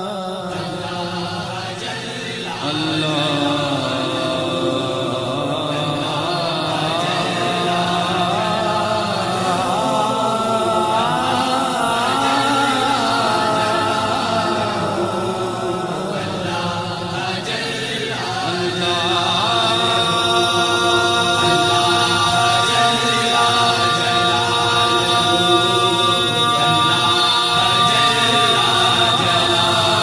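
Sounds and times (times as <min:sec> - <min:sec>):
gliding vocal melody: 0:00.0 - 0:30.0
voices chanting a drone: 0:00.0 - 0:30.0.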